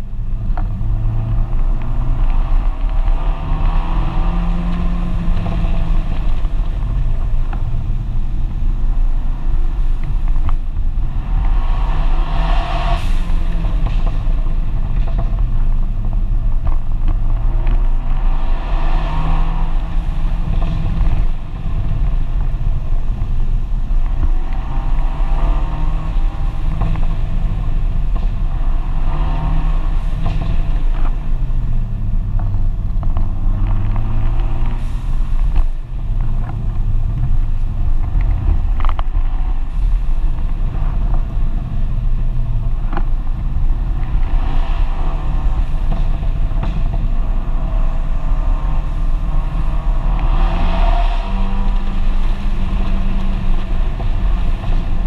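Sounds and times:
car engine revving: 0:00.0 - 0:55.0.

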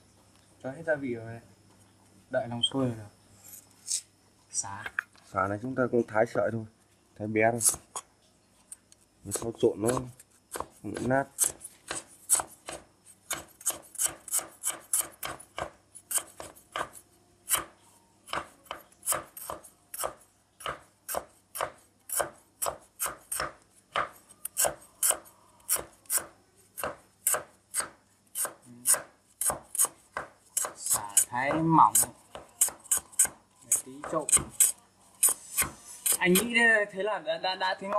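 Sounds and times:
cleaver chopping on plastic board: 0:09.3 - 0:17.7, 0:18.3 - 0:36.5.

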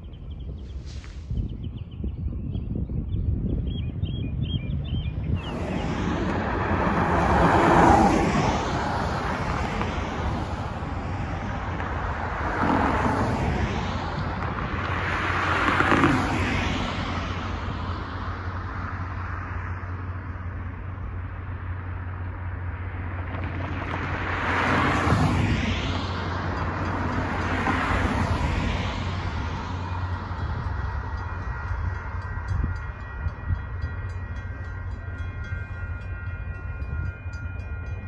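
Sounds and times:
low traffic rumble: 0:00.0 - 0:38.0
cars driving past: 0:05.2 - 0:37.8.

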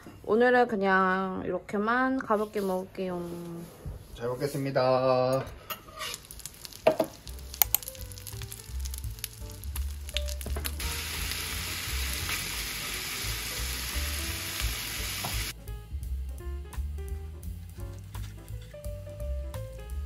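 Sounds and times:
oil sizzling in a frying pan: 0:05.7 - 0:20.0.

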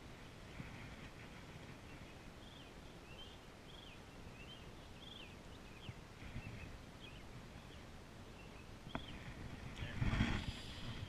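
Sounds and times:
wind: 0:00.0 - 0:11.0
small bird chirping: 0:01.8 - 0:09.3.

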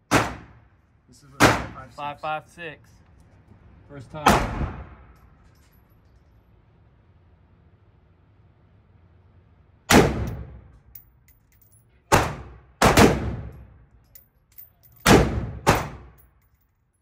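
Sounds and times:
rifle shots indoors: 0:09.9 - 0:10.6, 0:12.1 - 0:13.6, 0:15.0 - 0:16.2.

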